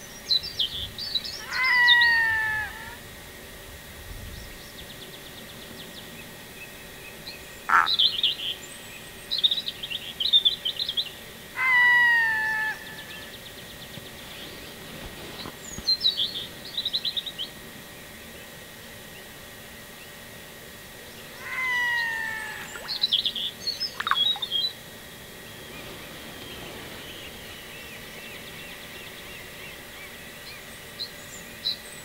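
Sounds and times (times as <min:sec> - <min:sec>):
songbirds singing: 0:00.0 - 0:02.4, 0:04.3 - 0:11.8, 0:12.4 - 0:19.3, 0:21.1 - 0:24.8, 0:25.4 - 0:32.0
bird drawn-out falling call: 0:21.4 - 0:23.2, 0:24.0 - 0:24.6.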